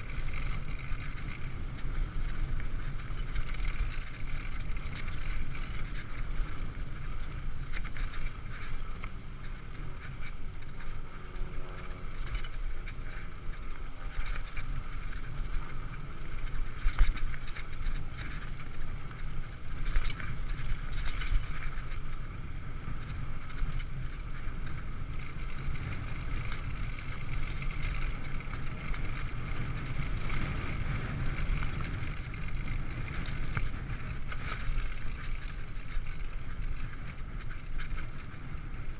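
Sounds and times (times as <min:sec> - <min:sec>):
bike tyres rumbling on dirt: 0:00.0 - 0:38.9.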